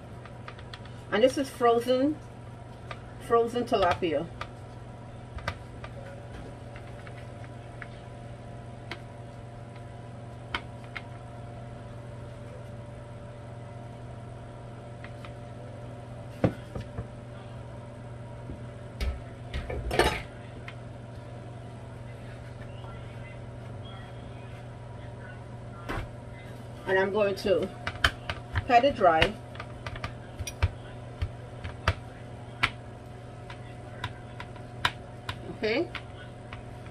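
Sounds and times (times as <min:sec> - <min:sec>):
air fryer fan hum: 0:00.0 - 0:36.9.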